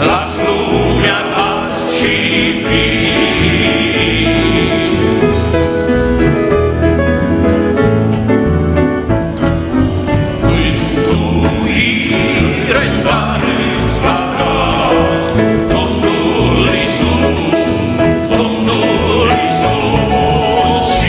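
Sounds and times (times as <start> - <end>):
male vocal group singing hymn: 0.0 - 5.6, 10.4 - 21.0
keyboard guitar and bass: 0.0 - 21.0.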